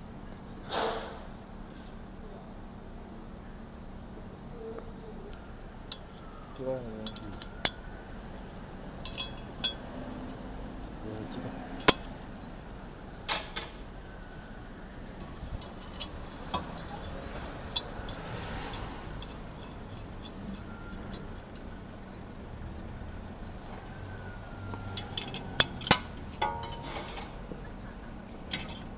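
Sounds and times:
metallic clinks of tools: 0:09.0 - 0:09.8.

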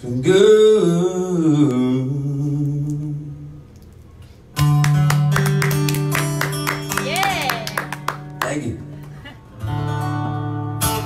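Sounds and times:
man singing: 0:00.0 - 0:03.5
acoustic guitar strumming: 0:04.5 - 0:11.0.

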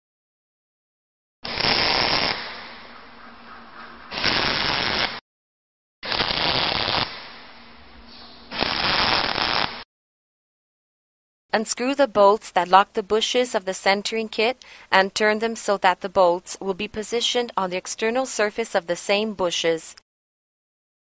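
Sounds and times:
arc welding crackle: 0:01.4 - 0:02.6, 0:04.1 - 0:05.2, 0:06.0 - 0:07.4, 0:08.5 - 0:09.8.

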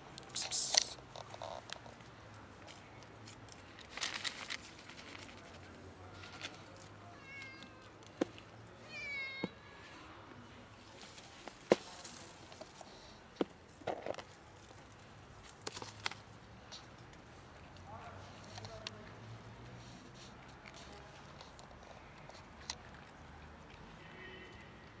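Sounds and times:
rustling in dry leaves: 0:02.6 - 0:07.5, 0:10.8 - 0:16.3
cat meowing: 0:07.1 - 0:07.9, 0:08.8 - 0:09.9.

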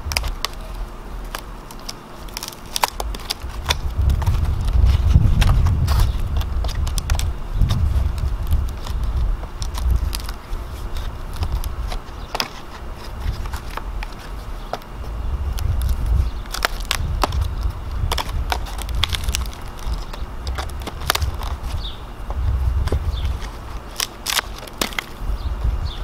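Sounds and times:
bark cracking and snapping: 0:00.0 - 0:26.0.

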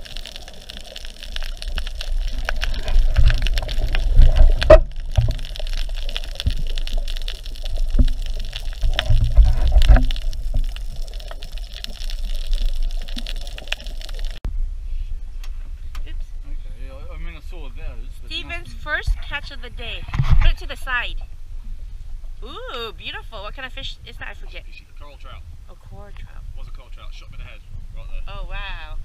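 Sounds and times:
deep water surges: 0:00.0 - 0:14.4
water sloshing and bubbling: 0:00.0 - 0:14.4.

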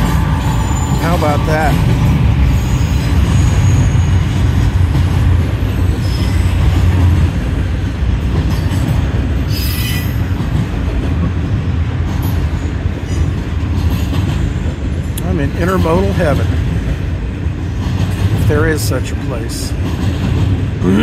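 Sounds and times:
high-pitched wheel squeal: 0:00.0 - 0:01.7, 0:02.4 - 0:04.4
train wheels rumbling on rail: 0:00.0 - 0:21.0.

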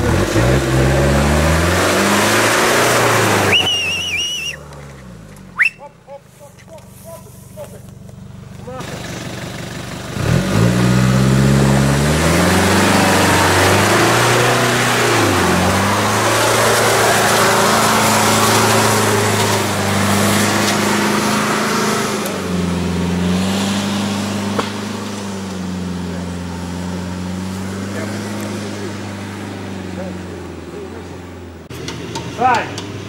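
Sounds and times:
engine revving hard under load: 0:00.0 - 0:04.1, 0:08.7 - 0:33.0
tyres churning mud: 0:00.0 - 0:04.6, 0:10.2 - 0:31.1.

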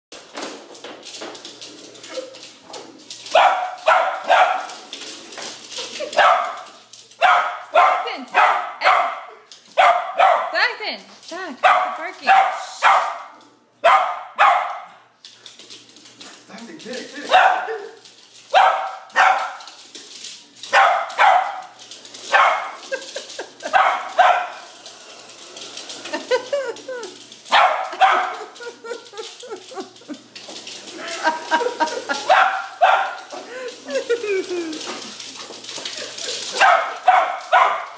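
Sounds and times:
small dog barking: 0:03.3 - 0:04.7, 0:07.2 - 0:10.5, 0:11.6 - 0:14.9, 0:17.3 - 0:18.0, 0:18.6 - 0:19.6, 0:20.7 - 0:21.6, 0:23.8 - 0:24.5, 0:32.3 - 0:33.2, 0:36.6 - 0:37.9.

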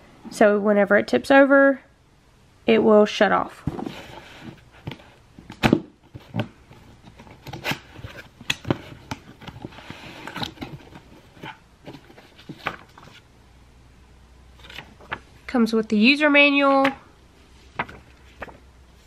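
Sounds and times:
cardboard box being handled: 0:06.1 - 0:13.2.

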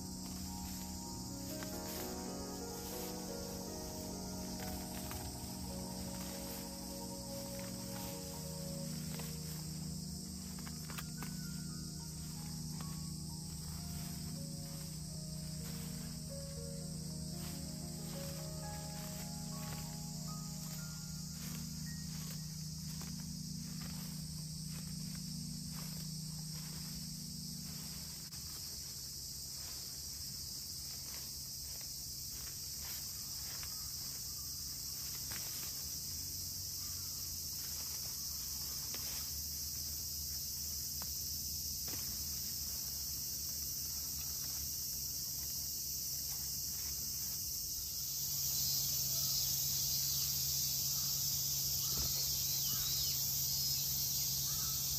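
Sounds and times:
faint ticks and rustles: 0:00.0 - 0:54.9
insect chorus drone: 0:00.0 - 0:54.9.

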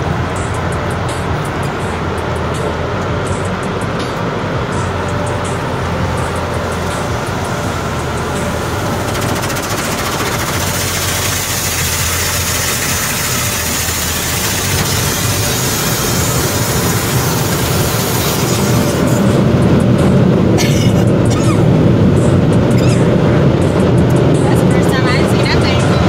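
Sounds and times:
car wash machinery rumble: 0:00.0 - 0:26.0
water spray drumming on car: 0:08.6 - 0:19.3.

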